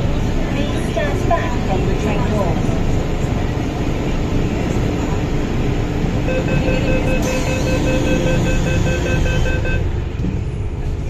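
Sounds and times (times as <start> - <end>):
train rumble: 0.0 - 11.0
train door warning beeps: 6.3 - 9.9.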